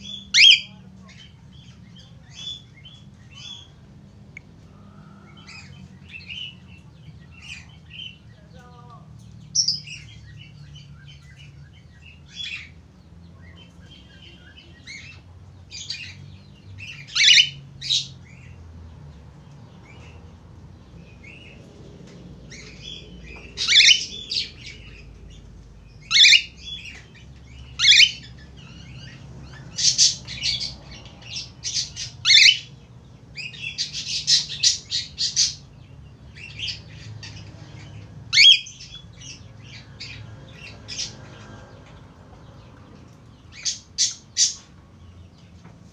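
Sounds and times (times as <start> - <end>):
cockatiel calling: 17.1 - 17.6, 23.6 - 24.2, 26.1 - 26.5, 27.8 - 28.3, 32.3 - 32.7.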